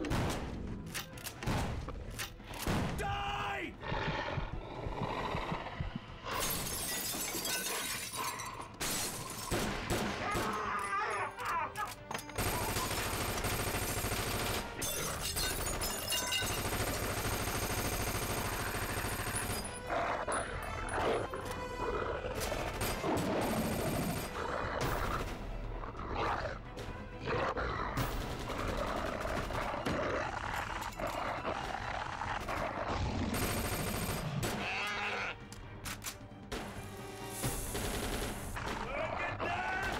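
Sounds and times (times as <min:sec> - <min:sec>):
film music score: 0:00.0 - 0:39.9
rapid gunfire: 0:12.4 - 0:14.8, 0:16.4 - 0:19.6, 0:28.0 - 0:30.0, 0:32.5 - 0:34.6, 0:37.5 - 0:38.9.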